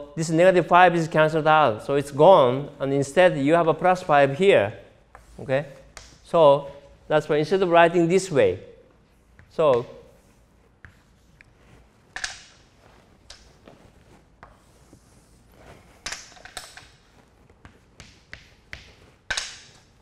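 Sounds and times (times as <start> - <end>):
chalk tapping and scratching: 5.1 - 6.2, 9.0 - 20.0.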